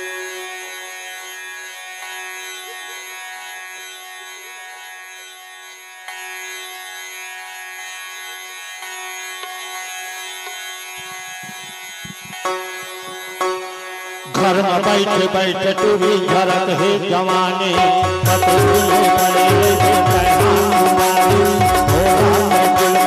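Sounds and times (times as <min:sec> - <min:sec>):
sustained drone notes: 0:00.0 - 0:01.8.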